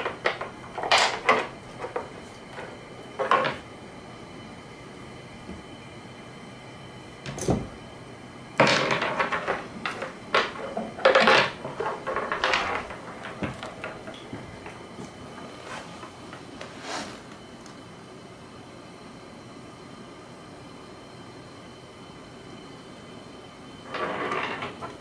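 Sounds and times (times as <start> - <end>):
small object rolling on wooden floor: 8.6 - 15.8, 23.9 - 25.0.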